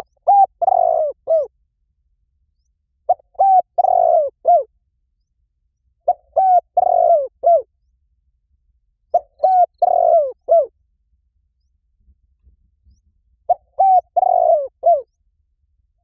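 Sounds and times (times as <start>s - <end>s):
dove cooing: 0.0s - 1.5s, 3.1s - 4.7s, 6.0s - 7.7s, 9.1s - 10.7s, 13.5s - 15.1s.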